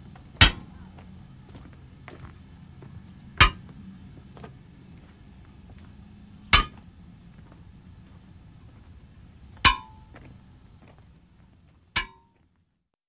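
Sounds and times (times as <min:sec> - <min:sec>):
hammer clanging on railway wheel: 0:00.4 - 0:00.9, 0:03.4 - 0:03.7, 0:06.5 - 0:06.8, 0:09.6 - 0:10.2, 0:12.0 - 0:12.4.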